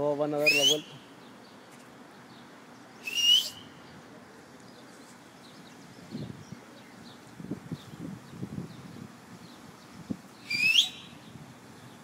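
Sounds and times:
faint bird chirps: 0.4s - 12.0s.

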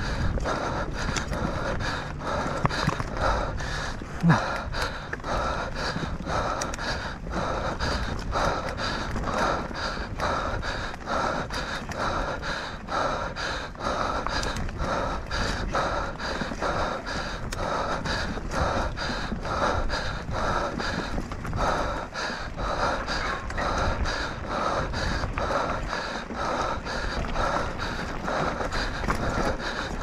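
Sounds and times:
person panting hard: 0.0s - 30.0s.

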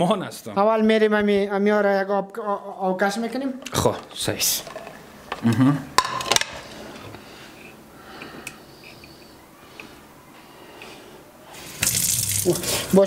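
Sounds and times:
water gushing into sink: 11.7s - 12.7s.

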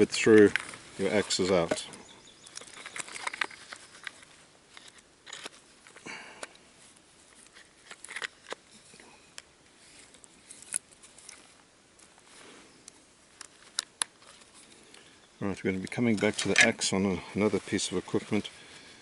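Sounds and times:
fabric and straps rustling: 0.0s - 15.2s.

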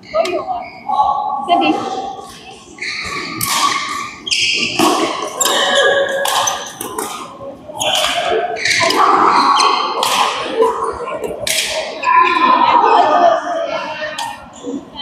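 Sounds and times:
rackets hitting shuttlecock: 2.9s - 10.6s, 11.4s - 12.0s.

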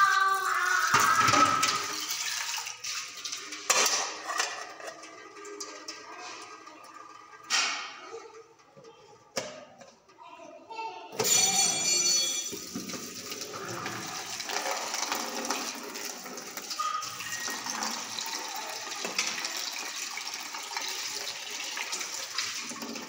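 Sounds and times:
tap water running into sink: 0.0s - 6.1s, 12.5s - 23.0s.

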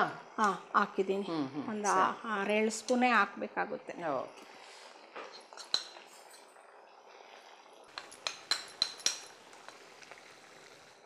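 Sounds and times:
spoon clinking against a plate: 5.3s - 6.1s, 7.9s - 9.4s.

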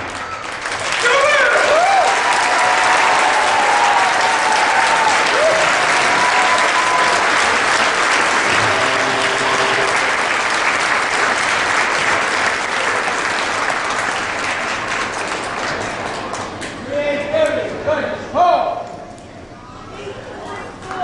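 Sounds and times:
audience applauding: 0.0s - 16.7s.

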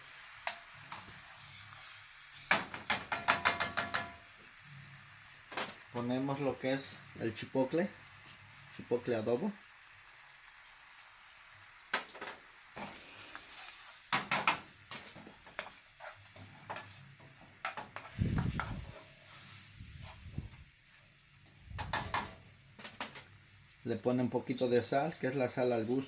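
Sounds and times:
faint sizzle from pan: 0.0s - 26.0s
spatula scraping skillet: 0.1s - 4.3s, 12.1s - 20.3s.

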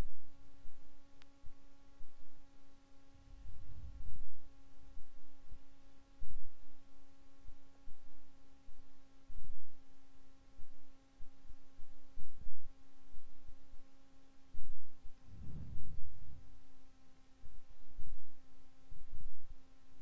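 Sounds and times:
steady tonal hum: 0.0s - 20.0s
soft low thuds: 14.7s - 16.7s.

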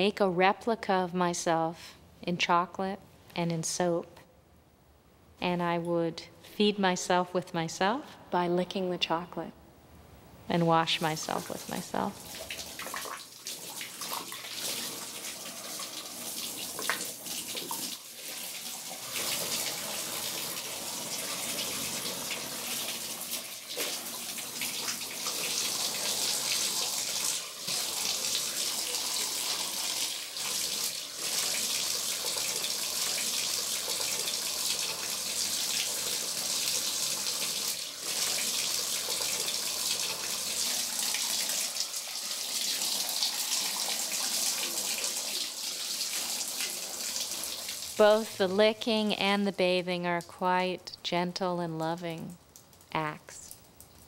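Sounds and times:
water running in a bathtub: 10.9s - 48.7s.

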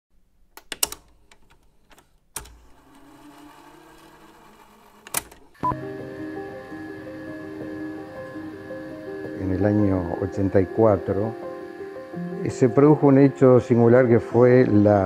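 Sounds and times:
tape rewinding whir: 2.4s - 15.0s
video player clicks and clunks: 5.1s - 5.6s
music: 5.6s - 15.0s.

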